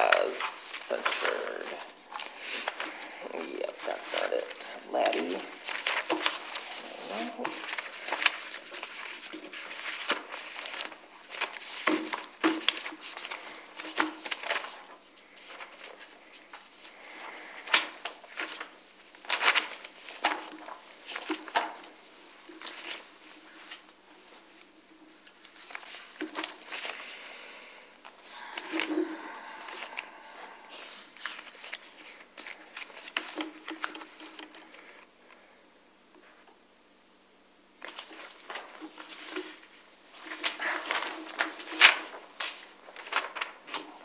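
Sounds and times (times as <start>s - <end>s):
paper rustling: 0.0s - 27.3s, 28.0s - 35.5s, 37.8s - 44.0s.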